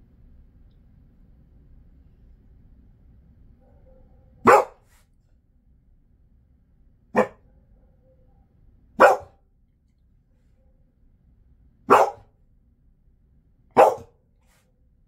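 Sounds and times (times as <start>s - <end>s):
dog barking: 3.6s - 5.0s, 7.1s - 8.4s, 9.0s - 9.4s, 11.8s - 12.3s, 13.7s - 14.2s.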